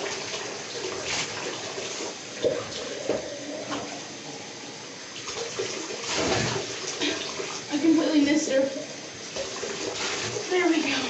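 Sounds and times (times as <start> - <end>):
bath tap running: 0.0 - 11.0
small water splashes: 5.2 - 7.8, 9.3 - 11.0.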